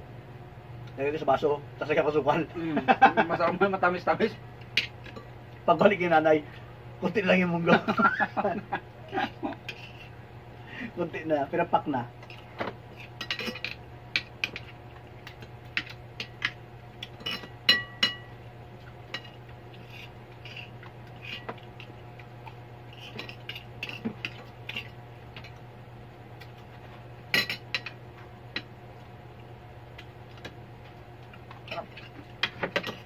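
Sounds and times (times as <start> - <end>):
cutlery clinking on plates: 17.1 - 18.3.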